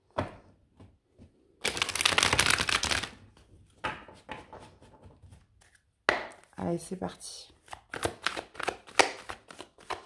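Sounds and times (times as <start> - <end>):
cards riffle-shuffled: 1.6 - 3.2, 7.6 - 10.0
cards tapping and clicking: 7.7 - 10.0.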